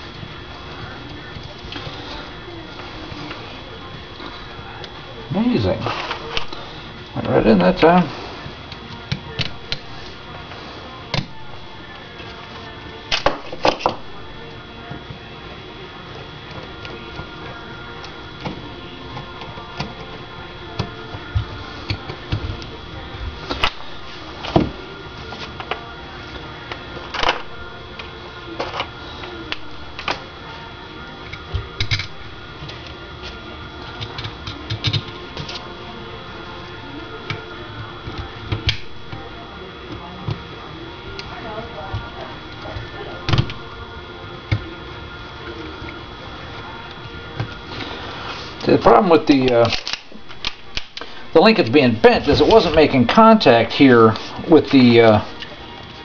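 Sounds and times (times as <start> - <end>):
faint steady hum: 0.0 - 56.0
metal parts clicking and tapping: 34.0 - 35.5.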